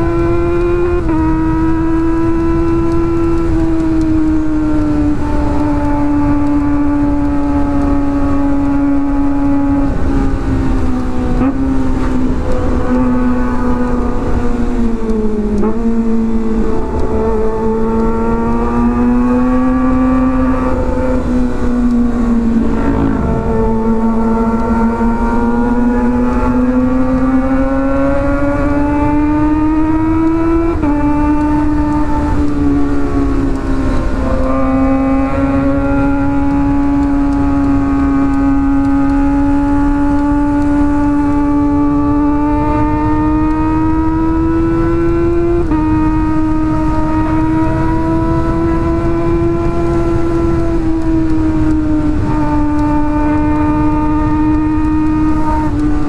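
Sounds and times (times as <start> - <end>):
motorcycle engine cruising: 0.0 - 56.0
wind rushing: 4.9 - 37.6.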